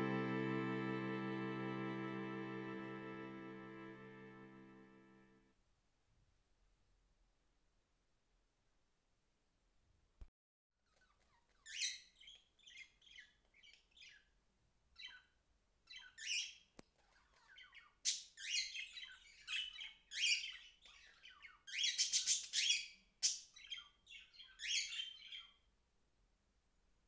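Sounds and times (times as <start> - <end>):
budgerigar chirping and chattering: 10.9 - 14.2, 15.0 - 15.3, 15.9 - 25.6.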